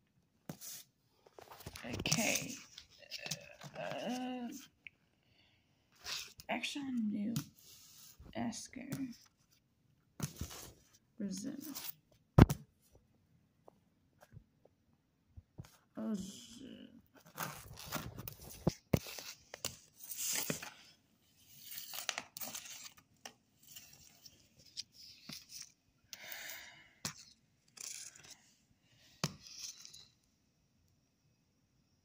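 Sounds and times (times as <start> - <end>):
paper ripping and rustling: 17.2 - 20.7.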